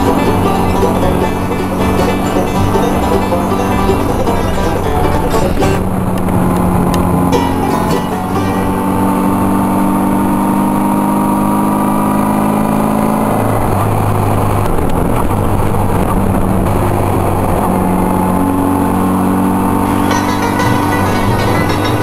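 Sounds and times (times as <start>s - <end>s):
motorcycle engine running: 0.0s - 12.8s, 17.3s - 22.0s
wind and road noise: 0.0s - 22.0s.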